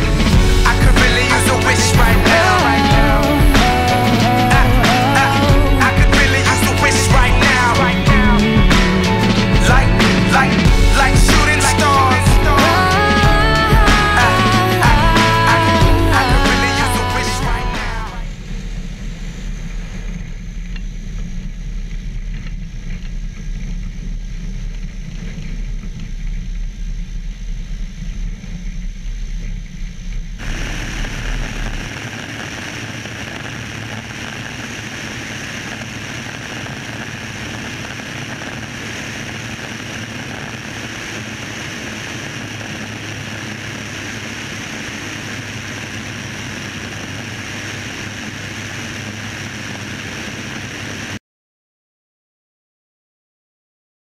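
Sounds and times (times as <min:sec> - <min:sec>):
propeller plane engine at full power: 0:00.0 - 0:51.2
wind rushing: 0:30.4 - 0:33.6.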